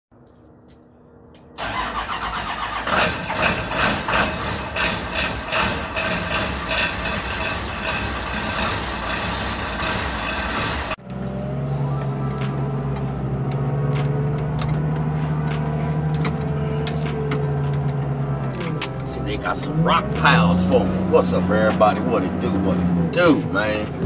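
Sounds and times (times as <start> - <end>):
engine starting and clattering: 1.6 - 11.2.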